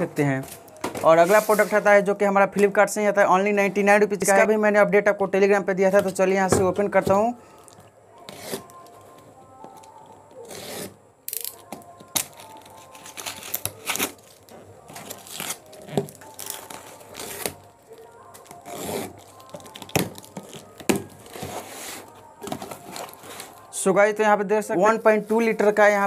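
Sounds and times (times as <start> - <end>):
tape tearing: 9.8 - 23.6
box cutter slitting tape: 10.4 - 17.6, 18.4 - 23.4.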